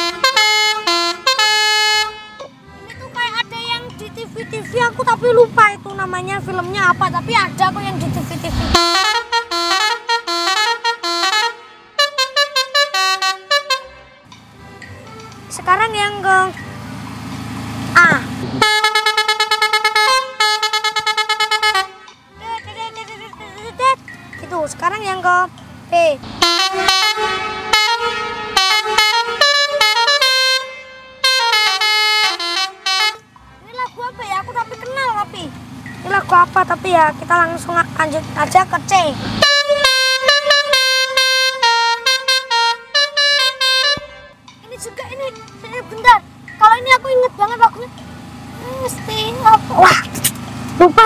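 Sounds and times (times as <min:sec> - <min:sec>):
musical air horn playing a tune: 0:00.0 - 0:02.5, 0:08.5 - 0:14.3, 0:18.6 - 0:22.2, 0:26.2 - 0:33.3, 0:39.2 - 0:44.4.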